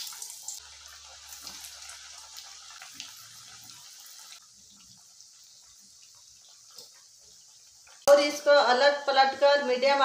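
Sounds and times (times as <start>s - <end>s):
food sizzling in hot oil: 0.0s - 10.0s.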